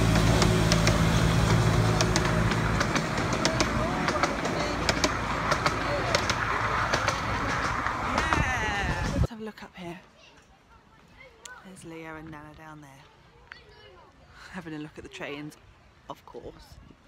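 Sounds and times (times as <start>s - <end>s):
distant voices: 0.0s - 9.3s
scattered clicks: 2.0s - 8.4s.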